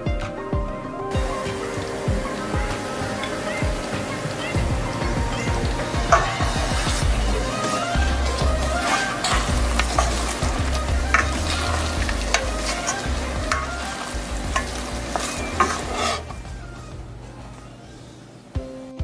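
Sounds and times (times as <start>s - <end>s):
sauce sizzling in a pan: 1.2s - 16.4s
spatula scraping a pan: 5.9s - 16.5s.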